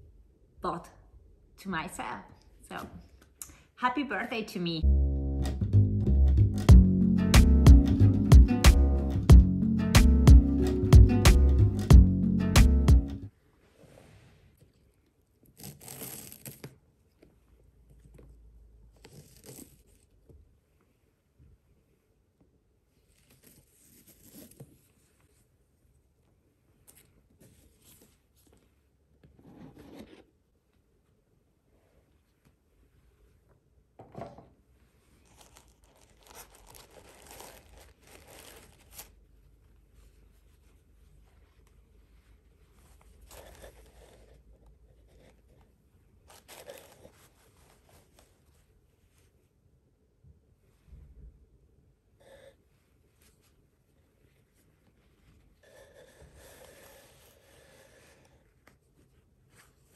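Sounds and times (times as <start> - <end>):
tissue paper crinkling: 35.1 - 39.2, 46.2 - 49.4
ribbon rustling on cardboard box: 35.2 - 39.2, 46.2 - 48.7.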